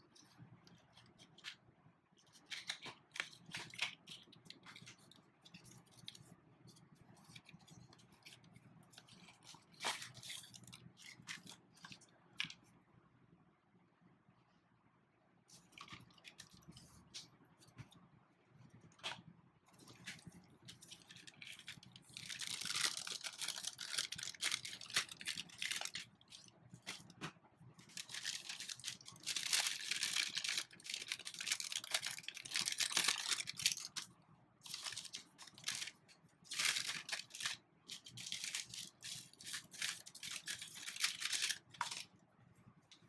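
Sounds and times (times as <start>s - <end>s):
plastic bag crinkling: 19.8s - 27.2s, 27.8s - 42.1s.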